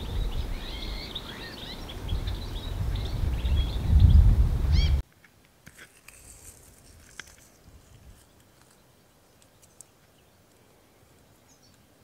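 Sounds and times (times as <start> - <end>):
faint bird chirp: 8.2 - 12.0.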